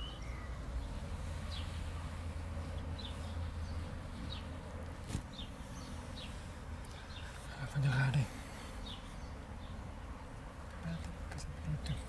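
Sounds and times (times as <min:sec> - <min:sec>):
faint bird chirps: 0:00.0 - 0:04.5.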